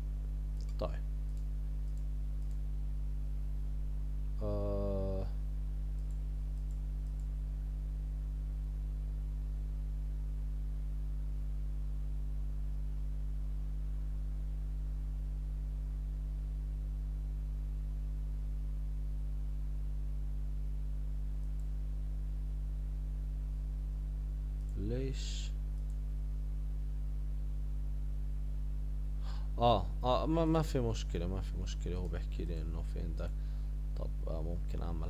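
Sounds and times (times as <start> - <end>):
low electrical hum: 0.0 - 35.0
faint clicks: 0.5 - 2.7, 5.9 - 7.3.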